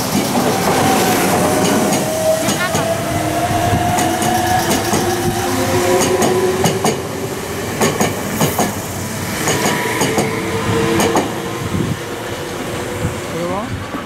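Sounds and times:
train wheels clacking over rail joints: 0.0 - 2.9, 3.7 - 7.1, 7.8 - 10.4, 11.0 - 11.4.

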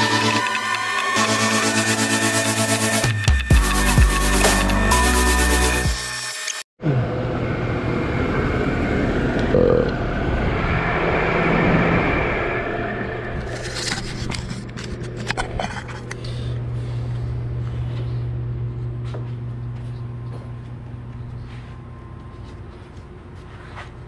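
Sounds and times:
steady low hum: 6.8 - 24.0.

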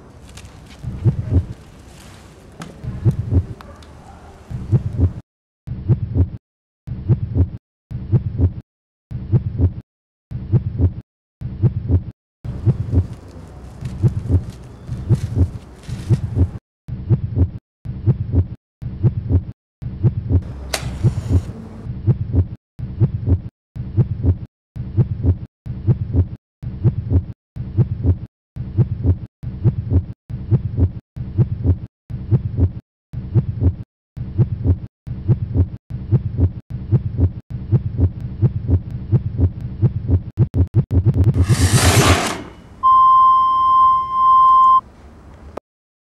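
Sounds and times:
heartbeat double thump: 0.9 - 1.5, 2.9 - 3.5, 4.6 - 5.2, 5.8 - 6.4, 7.0 - 8.6, 9.2 - 9.8, 10.5 - 13.1, 14.0 - 14.4, 15.1 - 20.5, 22.0 - 41.4
brief sharp sound: 41.4 - 43.0.

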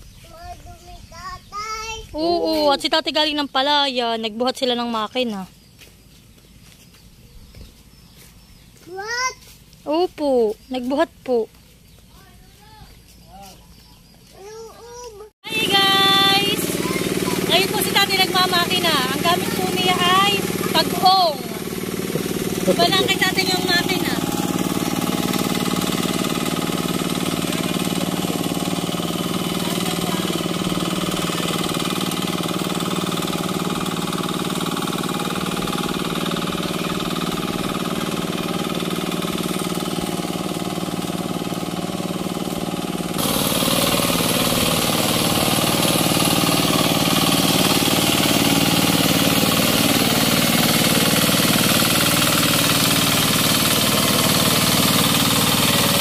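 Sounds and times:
hand tractor engine running: 14.4 - 56.0.

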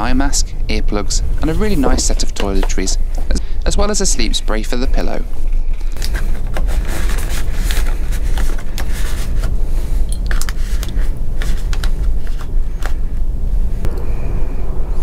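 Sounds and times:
train carriage rumble: 0.0 - 15.0
rustles and clicks of bottles: 5.3 - 13.0.

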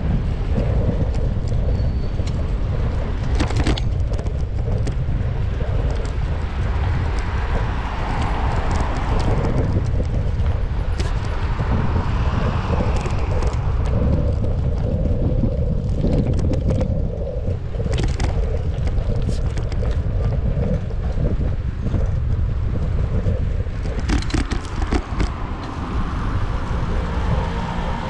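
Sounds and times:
road and tyre noise: 0.0 - 28.0
wind rumbling on microphone: 0.0 - 28.0
clicks and rattles: 23.8 - 25.7.

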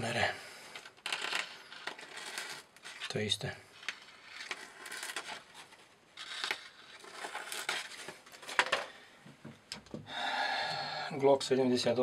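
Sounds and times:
paper rustling: 3.8 - 8.9.

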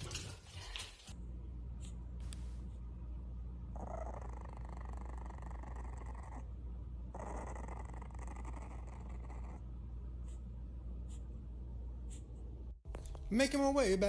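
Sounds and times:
puppy growling: 3.7 - 9.8.

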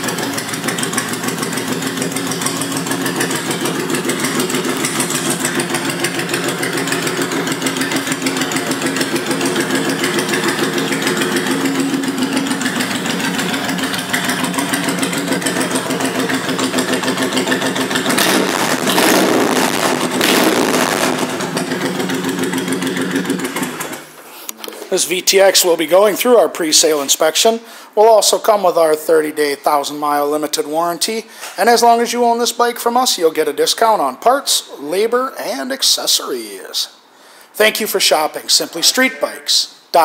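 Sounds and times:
motorcycle engine idling: 0.0 - 24.2.

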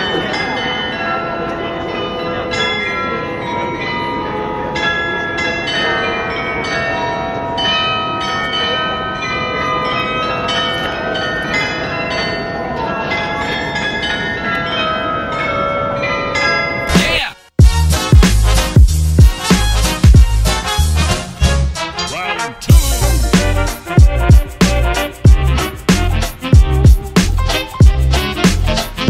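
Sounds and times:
carillon bells playing a tune: 0.0 - 16.9, 22.7 - 29.0.

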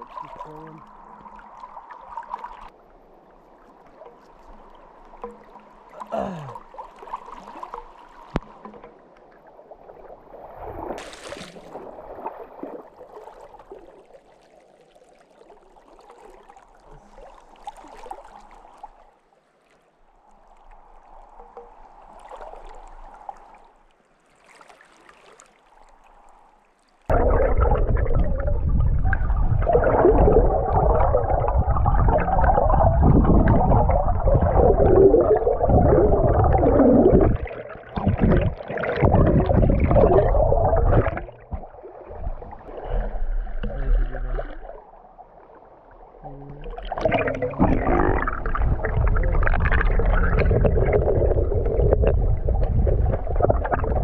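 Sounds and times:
river water gurgling and churning: 0.0 - 54.0.

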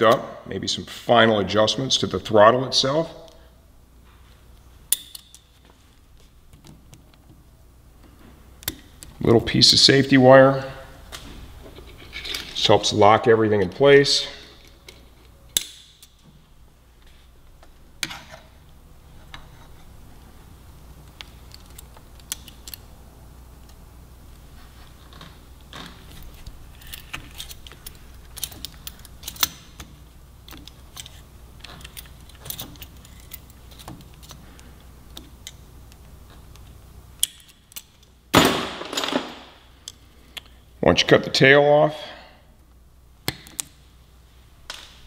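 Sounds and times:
small metallic clicks and scrapes: 26.1 - 29.9.

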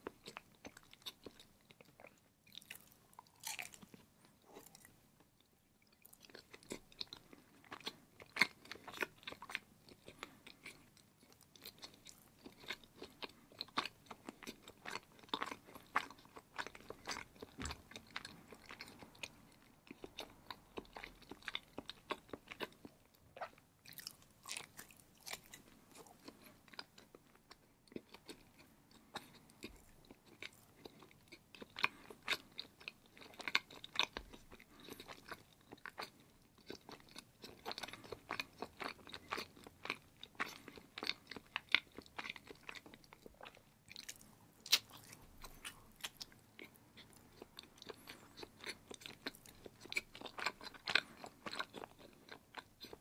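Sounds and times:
person chewing cheese: 0.0 - 53.0
mouth clicks and smacks: 29.2 - 53.0.

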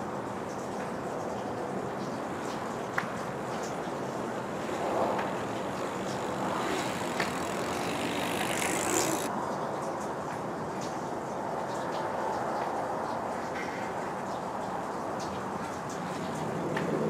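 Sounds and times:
street background: 0.0 - 9.5
bike tyres hissing on asphalt: 2.3 - 9.3.

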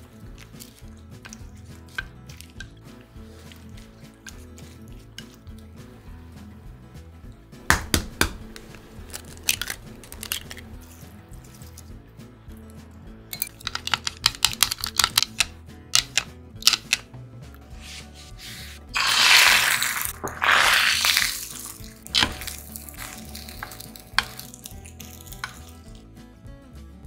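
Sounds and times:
background music: 0.0 - 27.0
taps in pan: 7.7 - 8.4
utensil clicking against cup: 13.4 - 17.1
egg sizzling in hot pan: 18.9 - 25.7.

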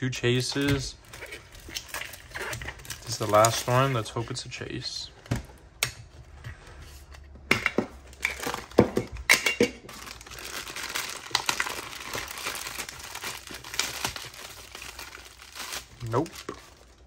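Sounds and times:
plastic bag crinkling: 0.5 - 4.4, 9.9 - 17.0.

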